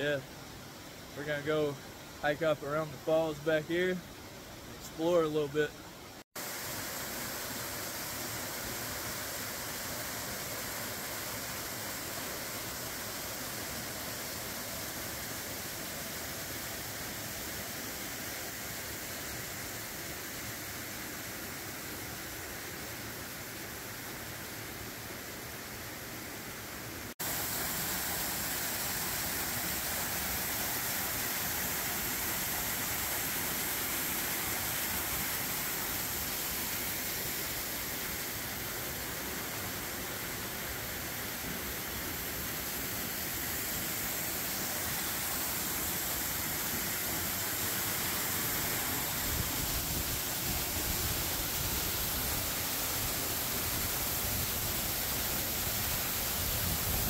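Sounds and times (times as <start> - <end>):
waterfall roar: 26.9 - 57.0.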